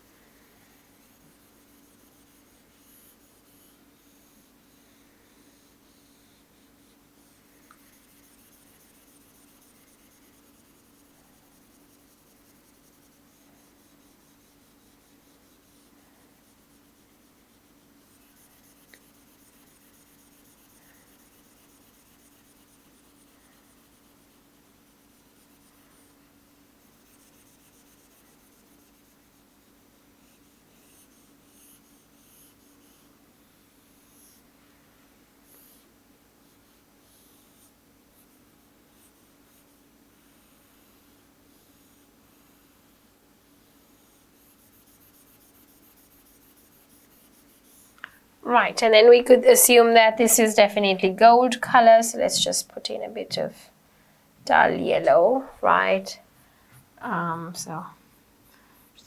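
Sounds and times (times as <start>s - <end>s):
stylus rubbing on screen: 0.0s - 53.7s, 54.4s - 59.0s
low room hum: 0.0s - 59.0s.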